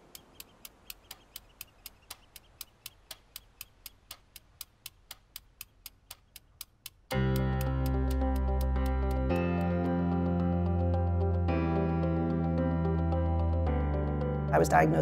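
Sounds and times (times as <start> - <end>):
clock ticking: 0.0 - 9.7
music with sustained chords: 7.1 - 15.0.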